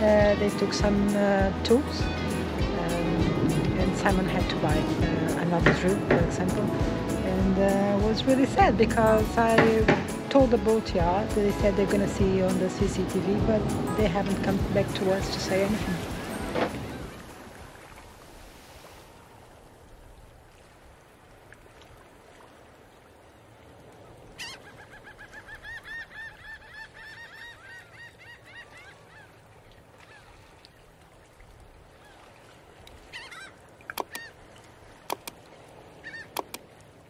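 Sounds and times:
sharp clicks: 33.9 - 34.3, 35.1 - 35.4, 36.3 - 36.6.

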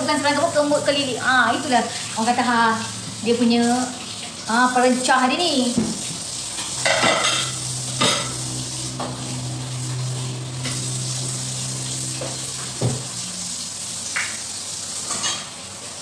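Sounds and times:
food sizzling in a pan: 0.0 - 16.0
steady low hum: 6.2 - 14.1.

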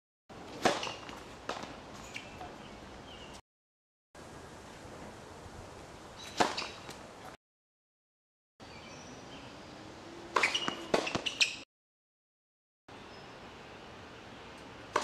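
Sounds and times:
tennis racket hitting ball: 0.6 - 2.6, 6.3 - 7.0, 10.3 - 11.5
short high squeaks: 10.4 - 11.6.

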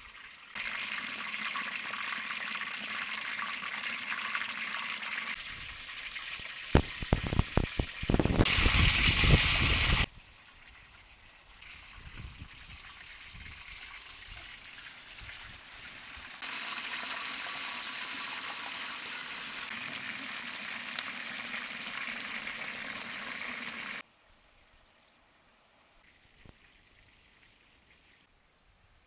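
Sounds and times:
pork sizzling in hot oil: 0.0 - 10.1, 11.6 - 24.0.

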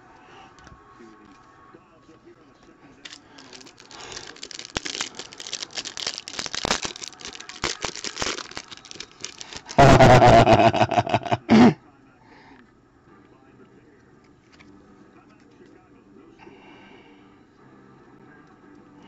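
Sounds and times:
plastic wrapper crinkling: 3.0 - 9.9
loud rustling: 3.1 - 9.8.

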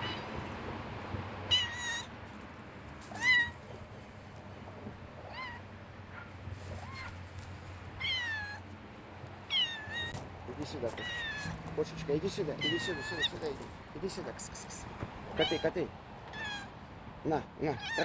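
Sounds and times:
cat meowing: 0.0 - 0.3, 1.5 - 2.1, 3.1 - 3.6, 5.2 - 5.6, 8.0 - 8.6, 9.5 - 10.2, 10.9 - 11.6, 12.6 - 13.4, 15.3 - 16.8, 17.8 - 18.0.

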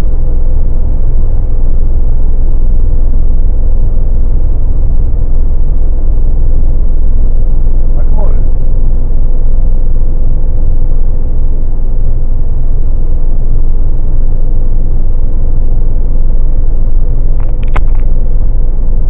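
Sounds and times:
car cabin road and engine noise: 0.0 - 19.0
brief clicks: 17.4 - 18.1.

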